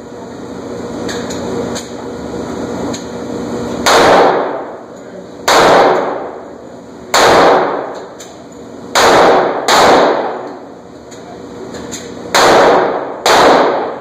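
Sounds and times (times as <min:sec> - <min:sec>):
pistol shots with echo: 0:03.8 - 0:04.7, 0:05.4 - 0:06.4, 0:07.1 - 0:08.0, 0:08.9 - 0:10.5, 0:12.3 - 0:14.0.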